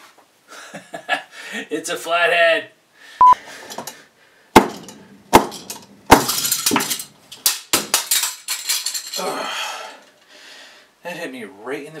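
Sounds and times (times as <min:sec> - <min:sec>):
hammer striking plastic box: 0:04.6 - 0:06.4
plastic clattering and breaking: 0:04.6 - 0:09.2.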